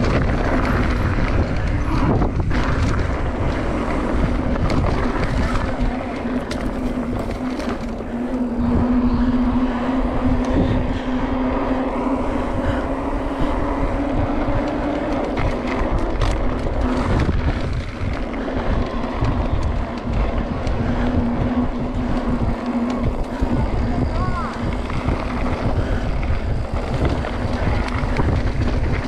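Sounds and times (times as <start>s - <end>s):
bike tyres rattling on track: 0.0s - 29.0s
steady hum: 0.0s - 29.0s
wind buffeting microphone: 0.0s - 29.0s.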